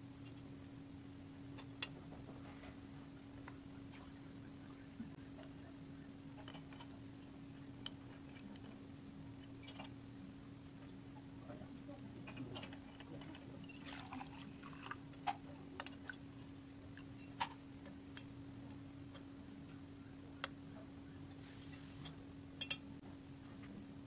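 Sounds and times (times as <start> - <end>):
faint low hum: 0.0 - 24.0
glass clicks and taps: 22.6 - 22.8.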